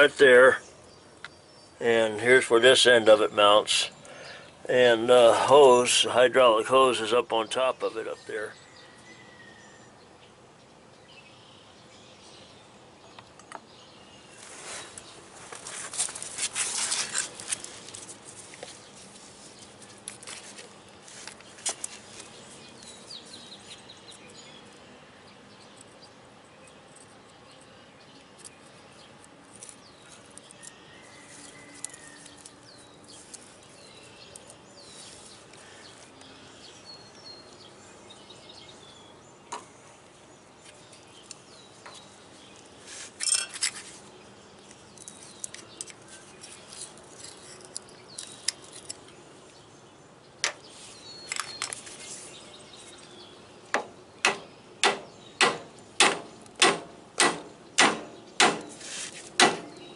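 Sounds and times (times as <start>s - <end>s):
birds chirping: 0.0s - 59.9s
pliers clicking and scraping metal: 28.2s - 30.8s, 31.4s - 33.4s, 43.2s - 43.9s, 44.7s - 49.2s.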